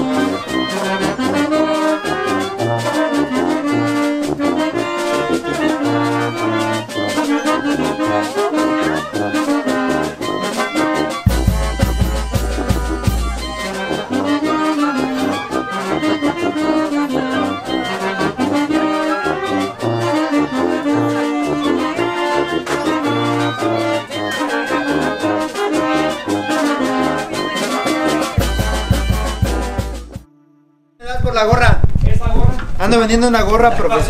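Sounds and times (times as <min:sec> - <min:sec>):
timbales and drums beat: 0:00.0 - 0:30.2
wind band playing: 0:00.0 - 0:31.2.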